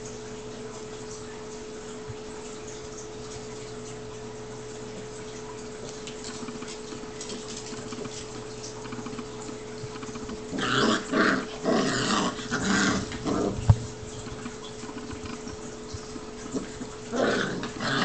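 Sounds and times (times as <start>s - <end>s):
puppies growling: 5.7s - 18.0s.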